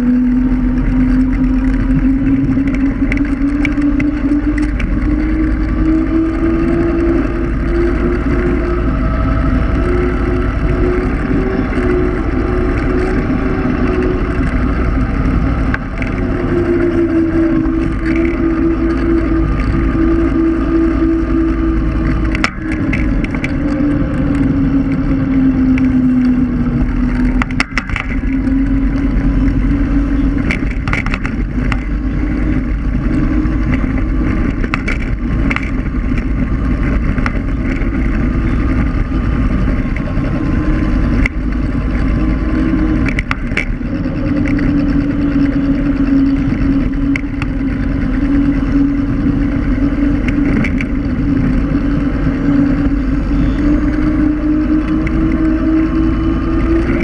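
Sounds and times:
electric scooter motor whine: 0:00.0 - 0:57.0
tyre rumble on asphalt: 0:00.0 - 0:57.0.

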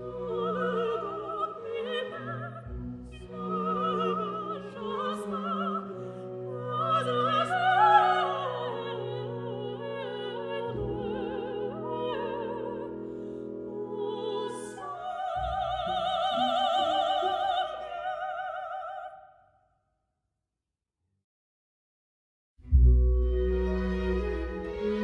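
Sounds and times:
operatic singing: 0:00.0 - 0:19.3
orchestral accompaniment: 0:22.7 - 0:25.0.

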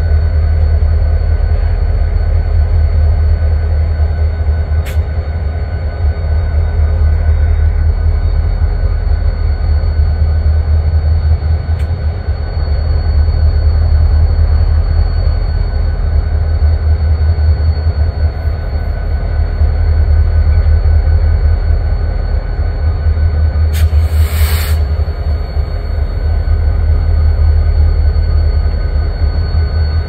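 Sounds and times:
diesel locomotives rumbling: 0:00.0 - 0:30.0.

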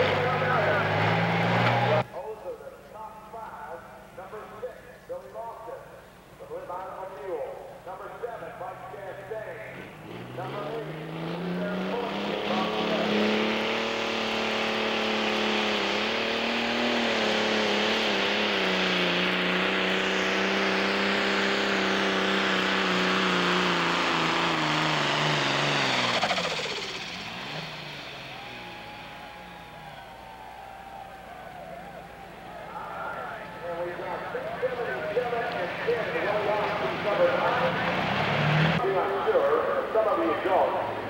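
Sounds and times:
diesel engine at full throttle: 0:00.0 - 0:02.1, 0:08.6 - 0:30.6, 0:32.4 - 0:41.0.

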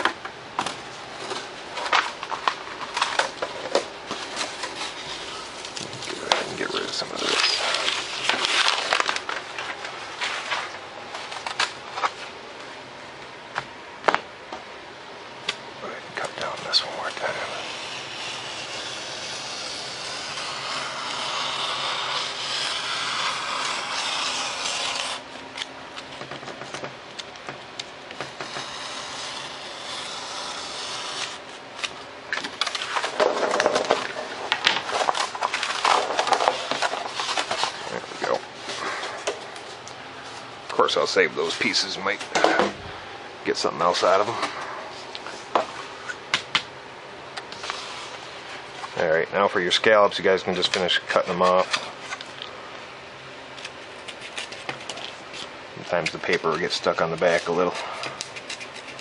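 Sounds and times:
foam board crinkling and rustling: 0:04.2 - 0:12.2, 0:32.6 - 0:39.2
knife scratching foam board: 0:17.1 - 0:25.3, 0:28.2 - 0:31.5, 0:57.2 - 0:59.0.

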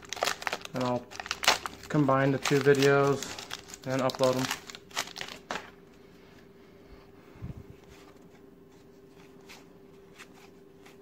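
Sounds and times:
wrapper crinkling: 0:00.0 - 0:05.7
faint steady hum: 0:00.0 - 0:11.0.

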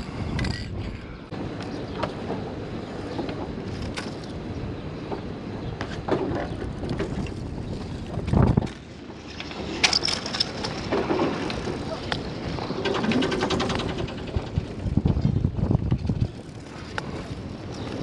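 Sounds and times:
wind buffeting microphone: 0:00.0 - 0:18.0
rigging clicks and knocks: 0:12.7 - 0:14.7.

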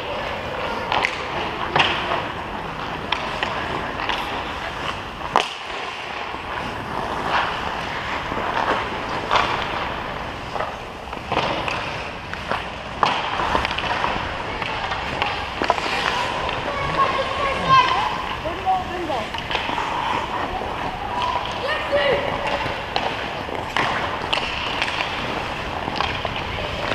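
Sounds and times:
skate blades scraping ice: 0:00.0 - 0:26.9.

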